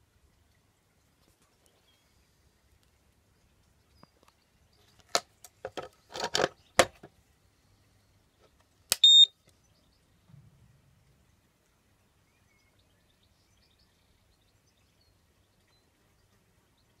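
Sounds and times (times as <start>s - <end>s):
handling clicks and rattles: 4.9s - 7.1s
high-pitched inverter beep: 9.0s - 9.3s.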